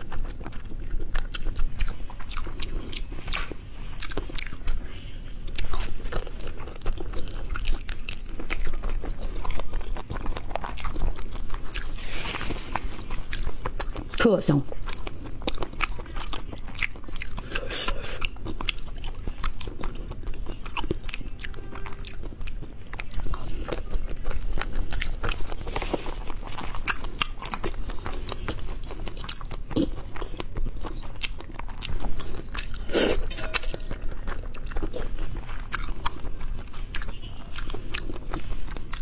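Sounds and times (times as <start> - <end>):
chewing with wet clicks: 0.0 - 39.0
slurping noodles: 32.7 - 33.5.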